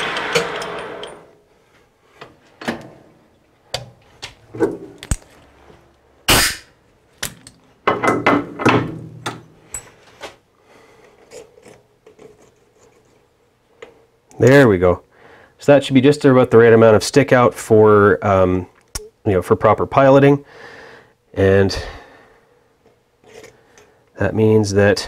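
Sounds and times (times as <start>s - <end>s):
metal clinks and knocks: 7.2s - 10.1s.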